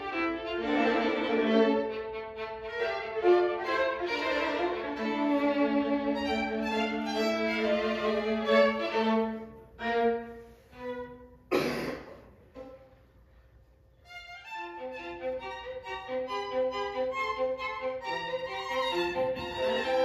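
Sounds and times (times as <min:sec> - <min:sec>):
string trio playing bowed chords: 0:00.0 - 0:11.5, 0:14.1 - 0:20.0
person coughing: 0:11.5 - 0:12.4.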